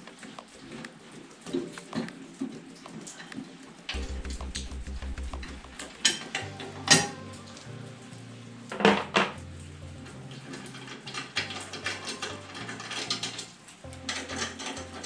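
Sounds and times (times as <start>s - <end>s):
small metal clicks: 10.0s - 15.0s.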